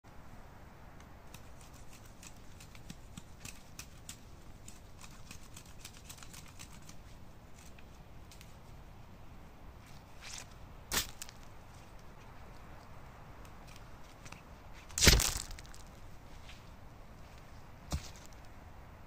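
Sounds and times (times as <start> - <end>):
faint background hiss: 0.1 - 19.0
knife cutting spruce branches: 1.3 - 8.5, 14.8 - 15.8.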